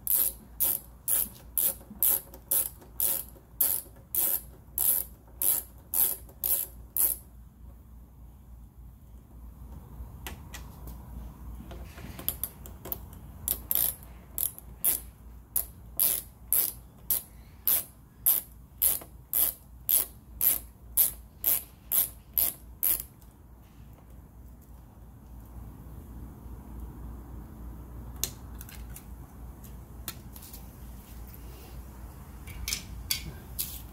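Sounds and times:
ratcheting screwdriver clicking: 0.1 - 7.2, 12.2 - 15.0.

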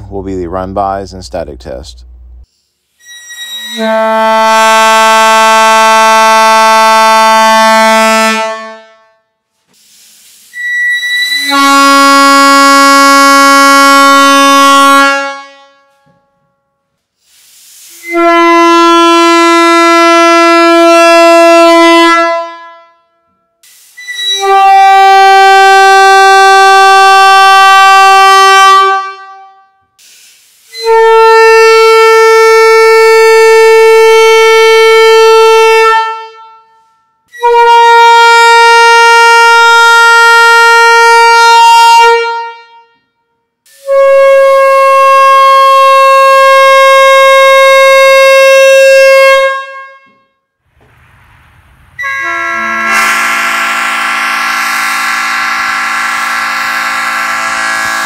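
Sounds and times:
train horn blasts: 3.0 - 9.4, 10.5 - 16.5, 17.9 - 30.0, 30.7 - 50.6, 52.0 - 58.0.

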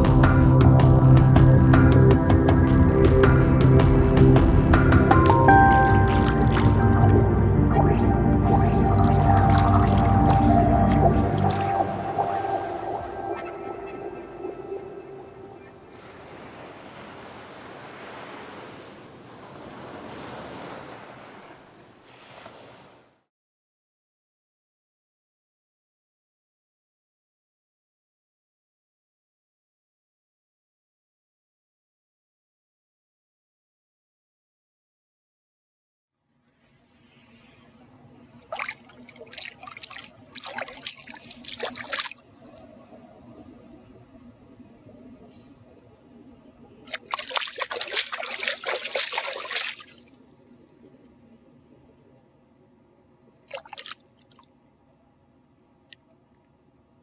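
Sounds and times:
held tones of soundtrack music: 0.0 - 16.0
rushing water-like noise: 5.2 - 7.2, 9.0 - 15.0, 37.9 - 45.3, 46.8 - 51.6, 53.4 - 54.5
low steady hum: 5.3 - 16.7, 36.6 - 57.0.

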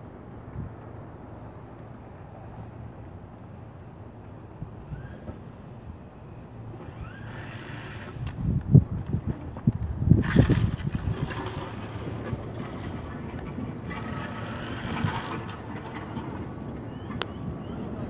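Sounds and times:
storm wind rumble: 6.9 - 18.0.

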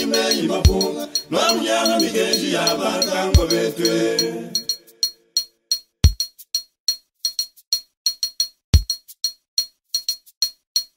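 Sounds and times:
deep drum beat: 0.0 - 2.1, 3.4 - 3.6, 8.8 - 9.0.

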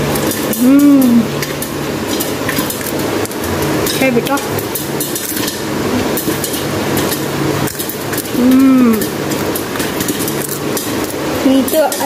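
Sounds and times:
steady low hum: 0.0 - 11.7
child humming: 0.5 - 1.3, 8.4 - 9.1.

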